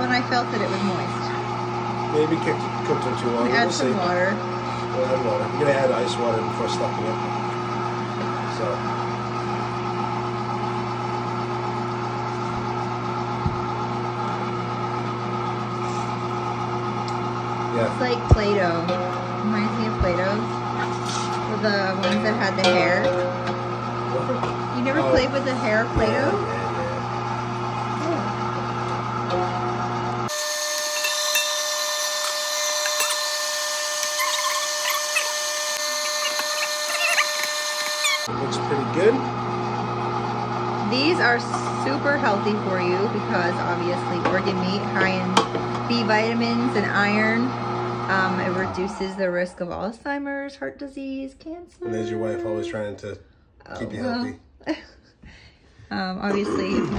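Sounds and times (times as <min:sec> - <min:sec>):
electric meat grinder humming: 0:00.0 - 0:49.8.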